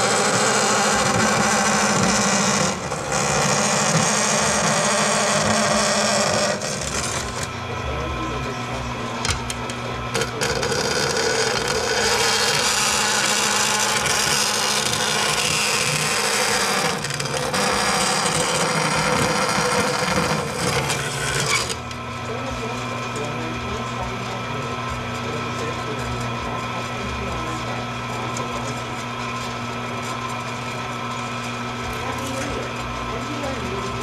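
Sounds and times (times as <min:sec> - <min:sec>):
bandsaw cutting metal: 0:00.0 - 0:07.6, 0:09.2 - 0:22.8.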